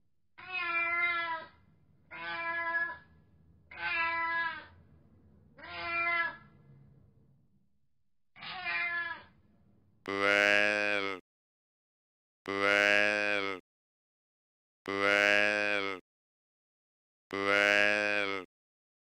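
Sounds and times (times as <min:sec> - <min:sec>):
cat meowing: 0:00.4 - 0:03.1, 0:03.7 - 0:04.7, 0:05.6 - 0:06.5, 0:08.4 - 0:09.4.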